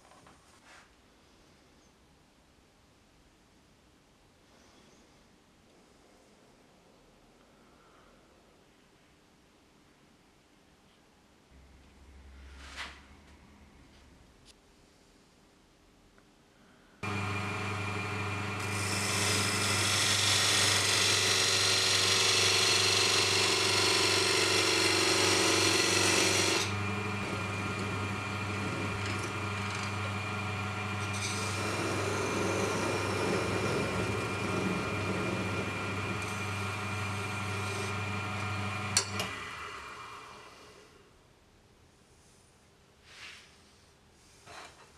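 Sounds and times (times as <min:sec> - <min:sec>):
parting tool cutting wood: 0:17.0 - 0:39.5
lathe motor hum: 0:17.0 - 0:40.8.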